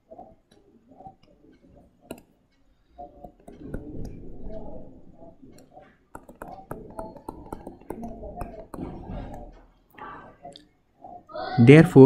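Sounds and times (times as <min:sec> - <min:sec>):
stylus tapping on tablet: 0:01.2 - 0:02.4, 0:03.0 - 0:09.7.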